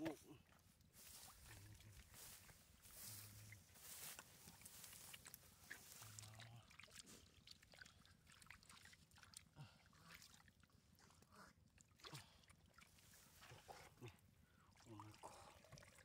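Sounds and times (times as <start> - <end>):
splashing in shallow muddy water: 0.0 - 16.0.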